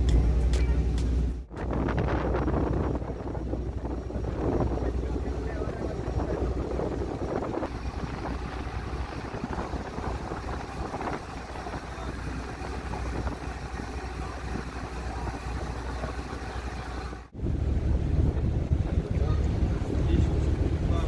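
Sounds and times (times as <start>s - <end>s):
ferry engine rumbling: 0.0s - 21.0s
water rushing alongside hull: 0.0s - 21.0s.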